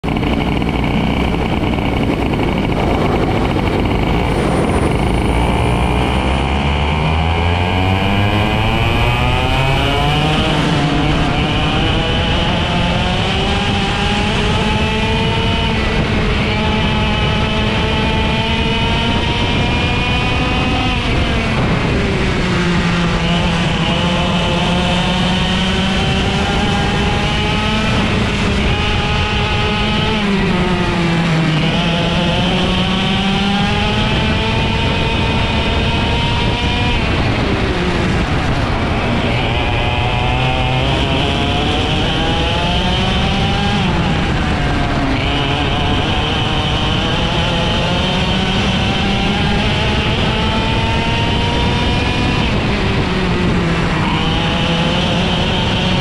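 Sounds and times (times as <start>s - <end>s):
kart engine racing: 0.0s - 56.0s.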